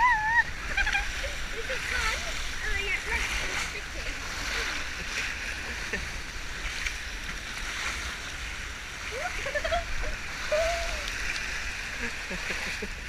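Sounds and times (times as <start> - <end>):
person crying out: 0.0 - 0.6, 10.5 - 11.1
water rushing down slide: 0.0 - 13.0.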